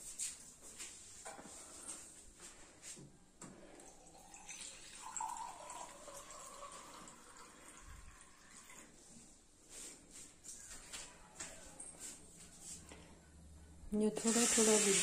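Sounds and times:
water running into steel glass: 14.2s - 15.0s.

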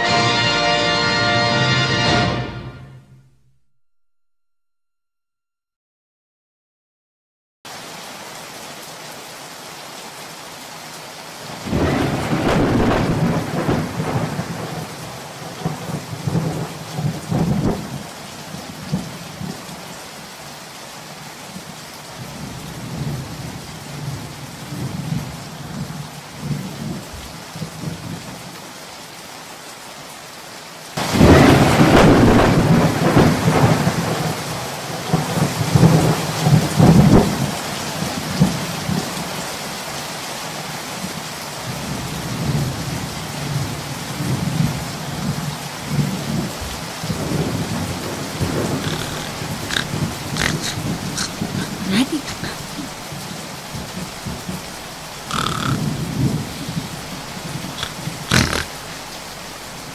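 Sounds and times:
steady rain: 7.7s - 59.9s
thunder rumbling: 11.6s - 18.1s, 31.0s - 34.4s, 45.9s - 59.9s
thunderclaps: 11.6s - 18.1s, 31.0s - 34.4s, 35.1s - 37.6s, 47.1s - 59.9s.

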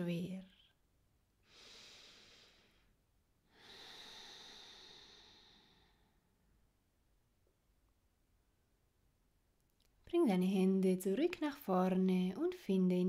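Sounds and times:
woman breathing: 1.4s - 6.6s.

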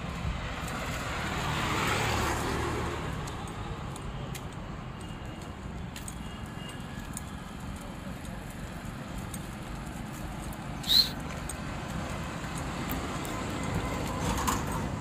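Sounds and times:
vehicle passing: 0.0s - 4.0s
street traffic: 0.0s - 15.0s
faint light ticks: 3.2s - 8.4s, 11.2s - 13.4s.

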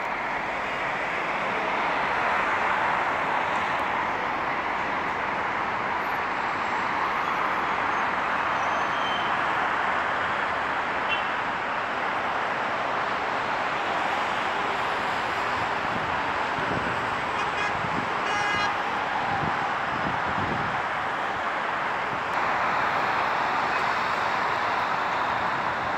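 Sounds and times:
busy road traffic: 0.0s - 25.9s
vehicle horn honking: 17.4s - 18.7s.

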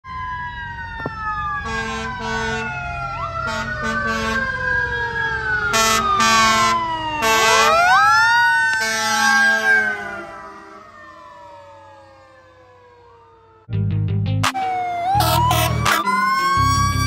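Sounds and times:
air horn blasts: 1.6s - 2.7s, 3.4s - 4.5s, 5.7s - 7.8s, 8.8s - 9.9s, 15.2s - 17.0s.

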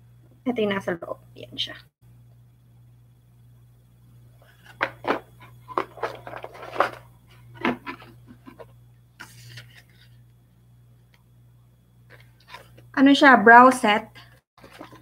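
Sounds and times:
cardboard and paper rustling: 4.5s - 10.2s, 14.6s - 15.0s.

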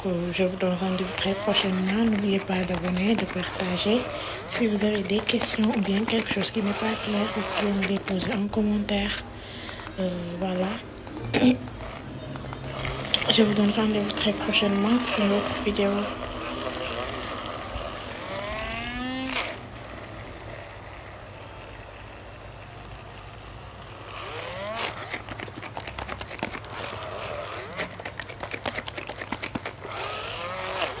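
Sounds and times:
blender motor whine: 0.0s - 9.0s, 11.7s - 31.0s
rapid clicking and rattling: 1.0s - 8.6s, 24.7s - 30.2s
sharp click: 9.6s - 13.2s.

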